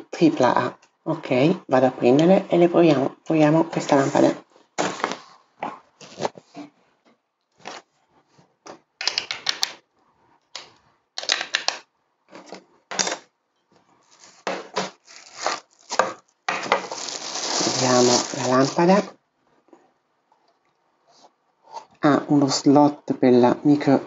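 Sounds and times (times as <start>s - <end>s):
plastic parts clicking: 9.0s - 9.8s, 10.5s - 11.8s
plastic bag crinkling: 14.0s - 19.1s.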